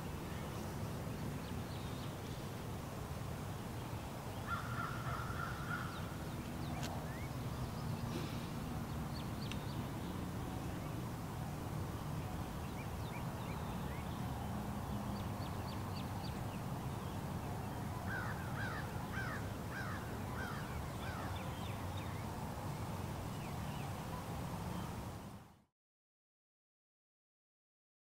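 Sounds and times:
distant highway traffic rumble: 0.0 - 25.4
small birds chirping: 3.8 - 11.1, 11.9 - 25.3
crows cawing: 4.5 - 5.9, 18.1 - 21.3.

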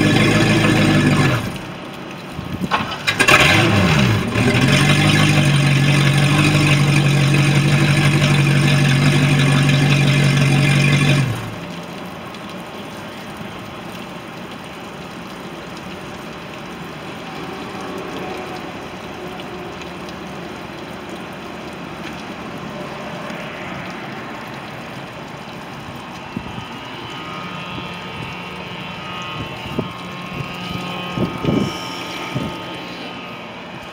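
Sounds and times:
boat engine idling: 0.0 - 12.3
water splashing onto pavement: 0.0 - 33.9.

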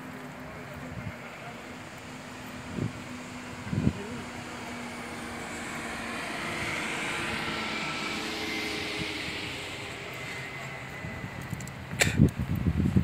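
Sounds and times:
engine noise: 0.0 - 13.0
steady low hum: 0.0 - 13.0.

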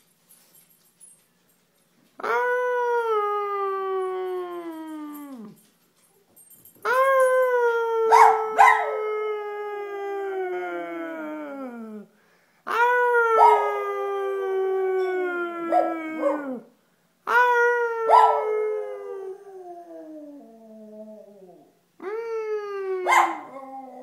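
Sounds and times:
man howling: 2.2 - 5.6, 6.8 - 12.1, 12.7 - 16.7, 17.3 - 24.0
dog howling: 12.7 - 16.7, 17.3 - 21.7.

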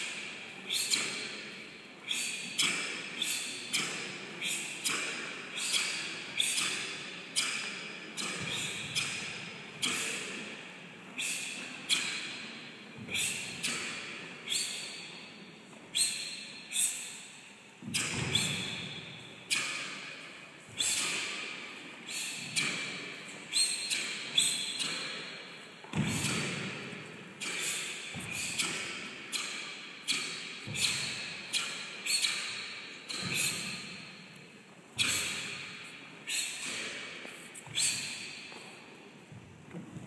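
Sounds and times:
quick exhalations: 0.0 - 15.3, 20.7 - 25.4, 26.1 - 34.2, 35.0 - 38.9.

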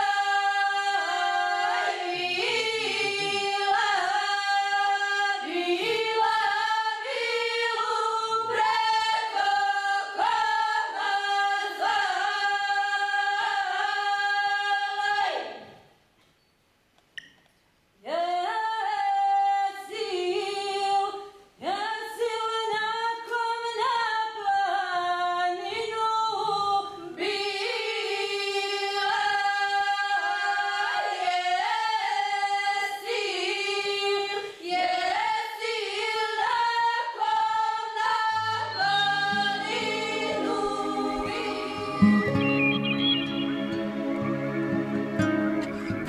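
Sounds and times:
choir singing a cappella: 0.0 - 15.9, 18.1 - 46.0.

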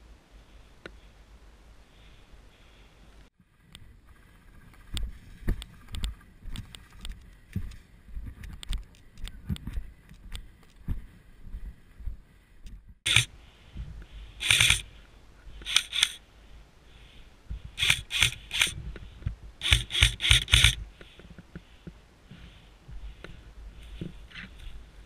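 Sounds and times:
airsoft rifle shots: 13.1 - 13.3, 19.6 - 20.8.

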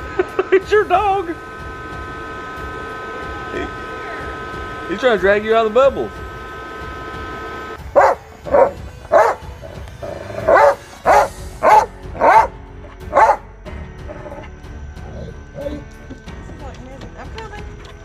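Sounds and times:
dog barking sharply: 8.0 - 9.4, 10.5 - 13.4.

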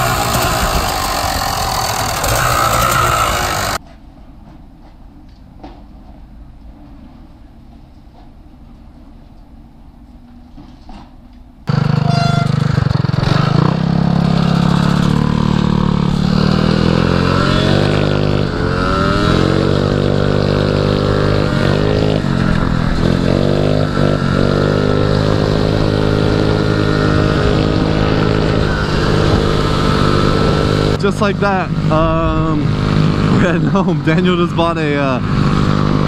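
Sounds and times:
scooter engine running: 0.0 - 3.8, 11.7 - 34.0, 35.2 - 36.0
wind rushing over microphone: 15.9 - 34.1.

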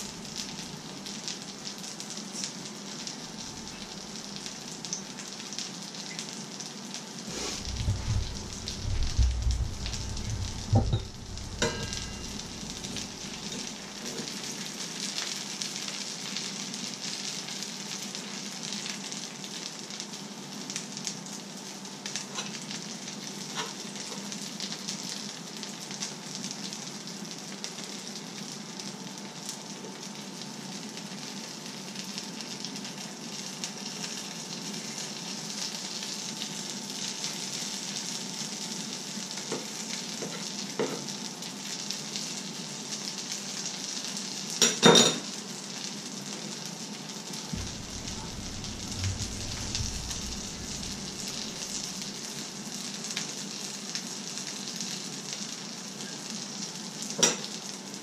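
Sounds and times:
sharp knocks: 7.7 - 13.0
eggs sizzling in a pan: 9.5 - 16.8.

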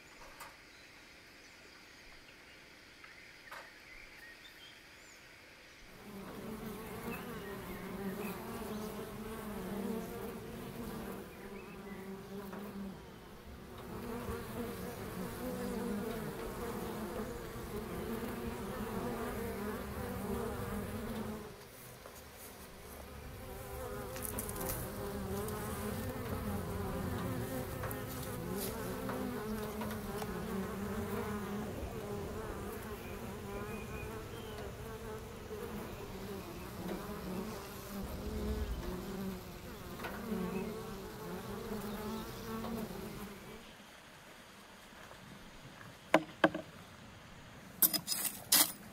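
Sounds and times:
honey bees buzzing: 5.9 - 43.7.

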